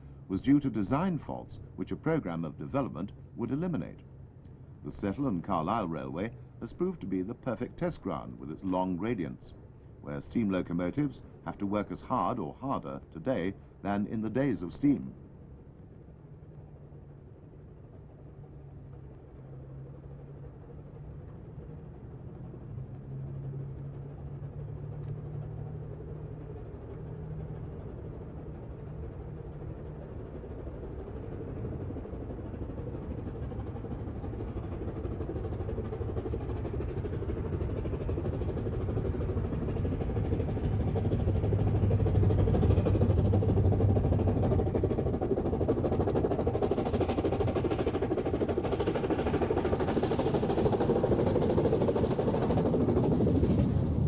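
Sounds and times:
steam locomotive exhaust beating: 18.0s - 54.0s.

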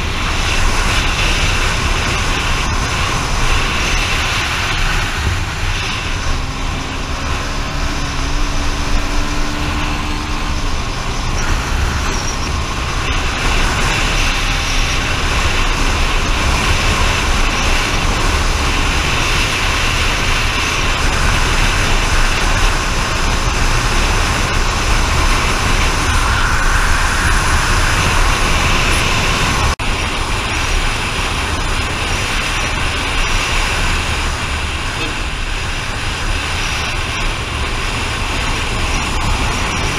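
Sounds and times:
road and wind noise: 0.0s - 39.9s
faint engine tone: 1.3s - 15.7s.

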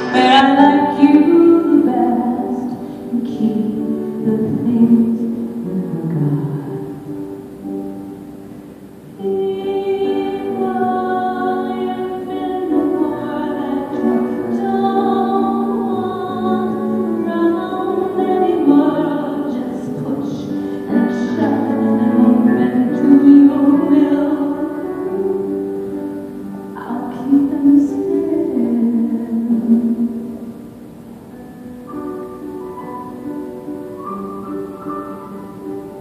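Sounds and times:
woman singing a slow ballad: 0.0s - 7.1s, 9.2s - 25.8s, 26.6s - 30.6s
grand piano: 0.0s - 36.0s.

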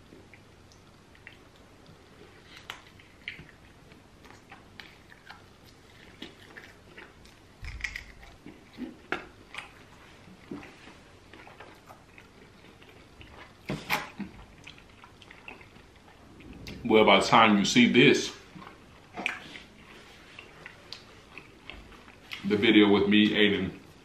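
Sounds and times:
person chewing food: 0.0s - 16.8s, 18.4s - 22.5s
wet mouth clicks and smacks: 6.1s - 9.7s.

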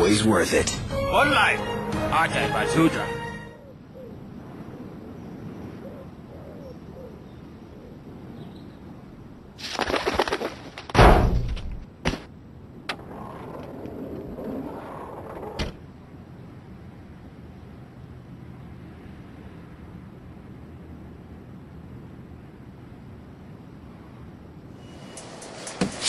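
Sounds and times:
pigeon cooing: 5.8s - 8.0s.

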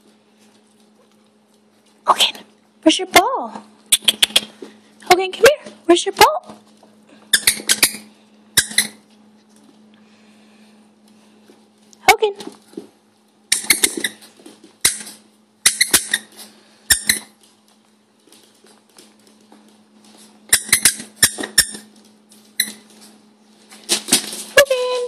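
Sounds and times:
squeaky dog toy squeaks: 7.3s - 9.0s, 14.9s - 16.3s, 16.9s - 17.3s, 20.5s - 21.9s.

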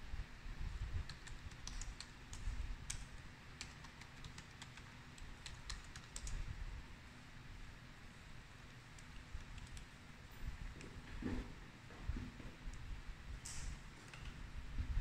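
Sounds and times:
typing on laptop keyboard: 1.0s - 6.5s, 8.6s - 10.0s, 13.5s - 14.4s.

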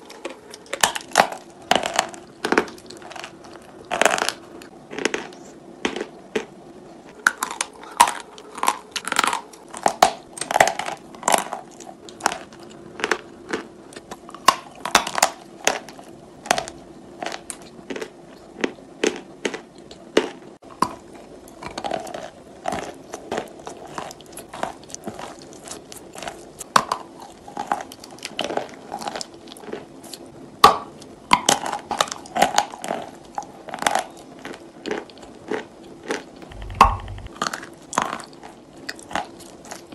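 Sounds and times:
faint steady hum: 0.0s - 39.9s
chalk crunching being chewed: 21.6s - 30.3s.

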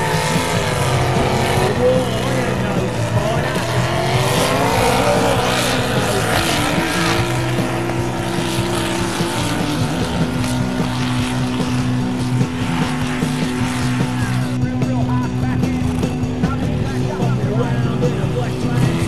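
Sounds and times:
truck engine revving under load: 0.0s - 19.0s.

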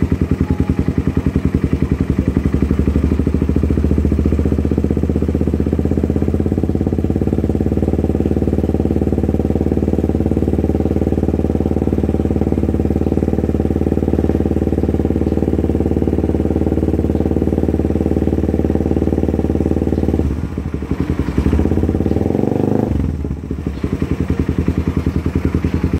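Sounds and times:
motorcycle engine idling: 0.0s - 25.9s.

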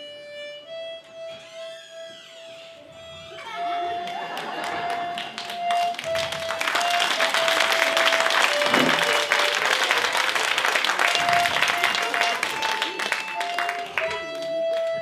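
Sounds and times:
accordion tune: 0.0s - 15.0s
audience applauding: 4.0s - 15.0s.

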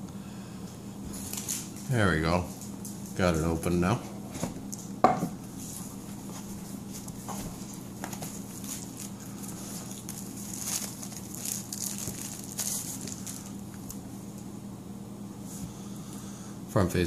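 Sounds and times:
plastic sleeve crinkling: 7.6s - 14.0s.

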